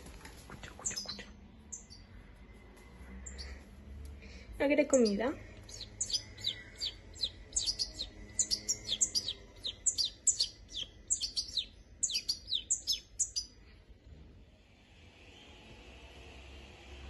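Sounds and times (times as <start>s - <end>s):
fledgling bird begging chirps: 0.8s - 2.1s, 3.3s - 3.6s, 4.9s - 13.6s.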